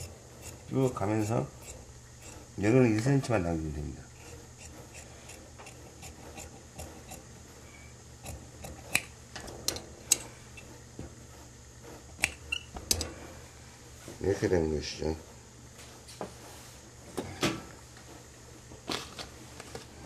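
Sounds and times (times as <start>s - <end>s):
shears snipping cloth: 0.0s - 3.4s, 4.1s - 7.3s, 8.2s - 9.1s, 12.0s - 12.8s.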